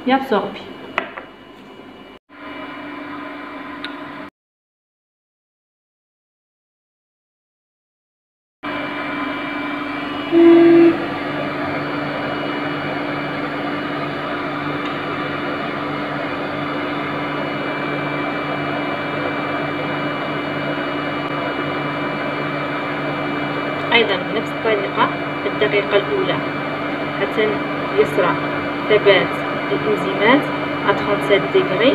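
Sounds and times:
analyzer humming with fixed tones: 8.7 - 31.9
short beep: 10.3 - 11.1.

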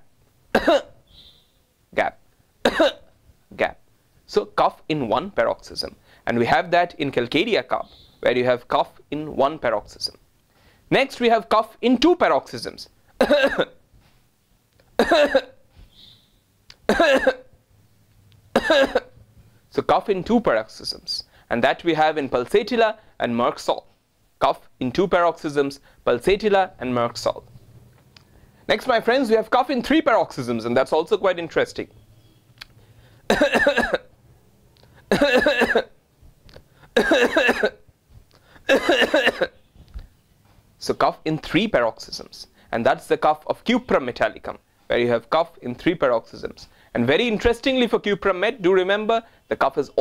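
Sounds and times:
man coughing: 0.5 - 1.0, 2.6 - 3.1, 13.2 - 13.8, 15.0 - 15.6, 16.9 - 17.5, 18.5 - 19.2, 33.3 - 34.1, 35.0 - 36.0, 36.9 - 37.9, 38.6 - 39.6.

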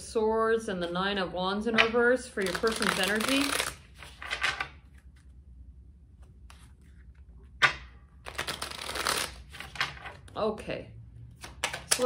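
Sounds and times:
cards shuffling: 2.4 - 5.3, 6.2 - 10.3, 11.4 - 12.0.

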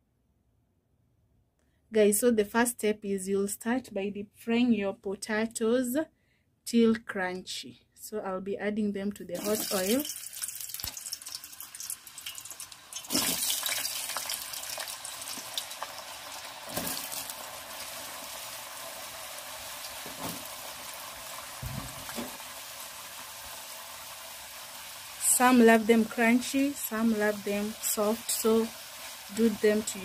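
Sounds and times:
potatoes deep-frying in oil: 9.3 - 30.0.

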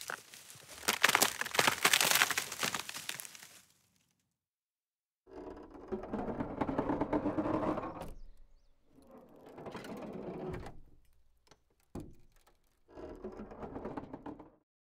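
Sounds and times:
long drawn-out creaks: 5.3 - 14.6.

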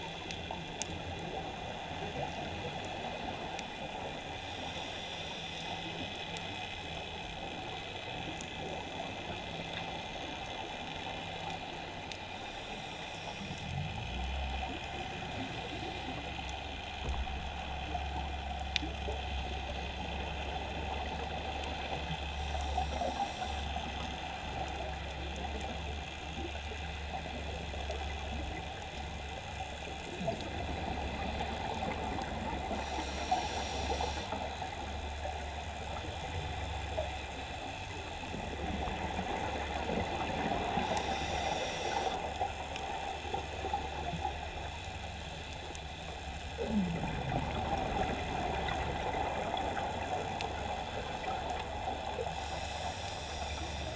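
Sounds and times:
steady low hum: 0.0 - 53.9
underwater watery hiss: 0.2 - 6.4, 12.2 - 14.2, 14.9 - 18.9, 19.8 - 25.7, 30.6 - 36.0, 36.9 - 53.9.

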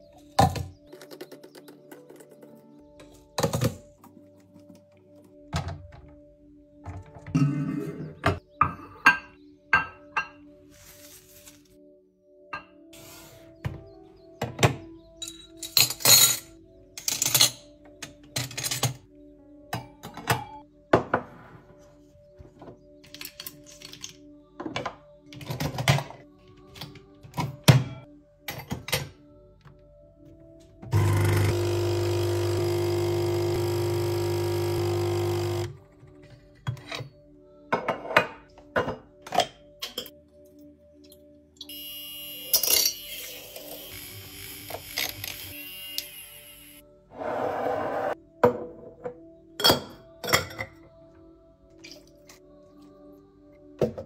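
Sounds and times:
soft background music: 0.0 - 54.0
coffee machine pump buzzing: 30.9 - 35.7
objects knocking on countertop: 48.4 - 49.1.

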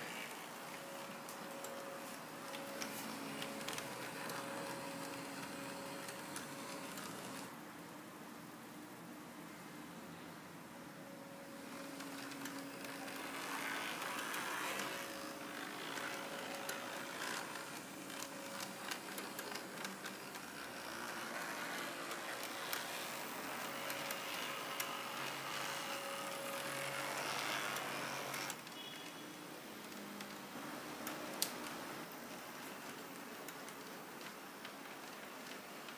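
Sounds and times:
small electric motor whirring: 2.6 - 7.5, 11.6 - 28.6.

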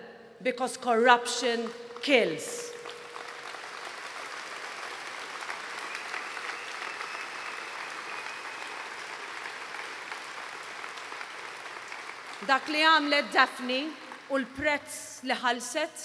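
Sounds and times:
crowd applauding: 2.5 - 14.3
person giving speech: 12.4 - 16.0.

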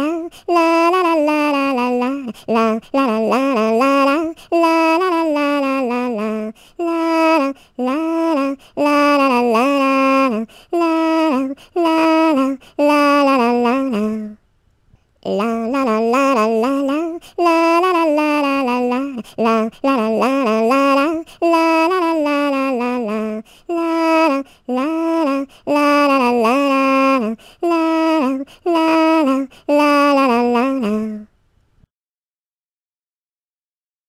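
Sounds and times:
high voice singing children's song: 0.0 - 14.4, 15.0 - 31.4.

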